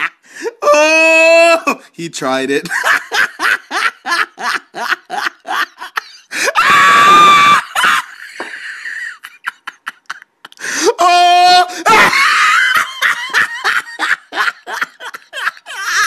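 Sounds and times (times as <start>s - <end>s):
person laughing hard: 2.7s - 16.0s
high-pitched scream: 6.5s - 7.8s.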